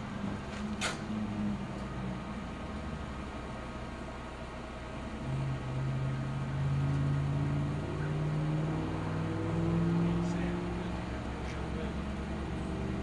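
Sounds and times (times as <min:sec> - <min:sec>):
truck diesel engine revving: 0:04.7 - 0:13.0.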